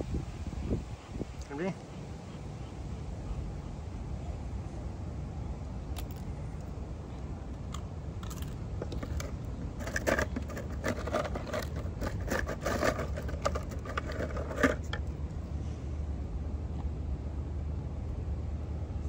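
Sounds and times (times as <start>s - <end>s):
dog chewing crunchy treat: 7.6s - 15.1s.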